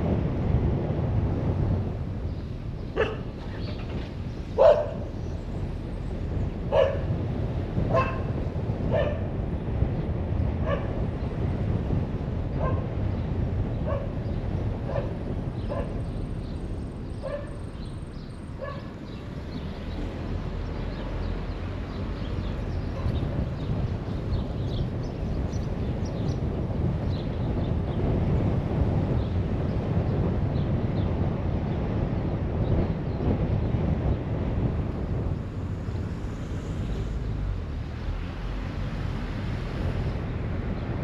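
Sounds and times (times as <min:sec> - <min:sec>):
dog barking: 0:03.0 - 0:03.3, 0:04.6 - 0:05.0, 0:06.7 - 0:07.1, 0:07.9 - 0:08.3, 0:08.9 - 0:09.3, 0:10.6 - 0:11.0, 0:12.6 - 0:12.9, 0:13.8 - 0:14.1, 0:14.9 - 0:15.1, 0:15.7 - 0:16.0, 0:17.2 - 0:17.6, 0:18.6 - 0:18.9.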